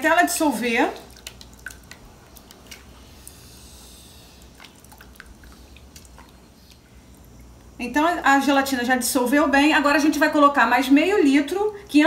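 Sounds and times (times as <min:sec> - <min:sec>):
liquid stirring: 0:00.9 - 0:03.2.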